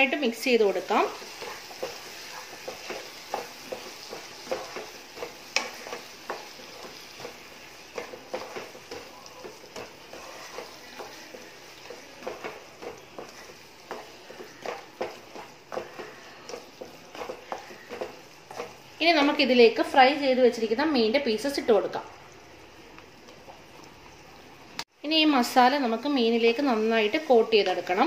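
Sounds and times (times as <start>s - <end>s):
sauce sizzling: 0.0s - 28.0s
wooden spatula scraping a pan: 0.5s - 20.0s.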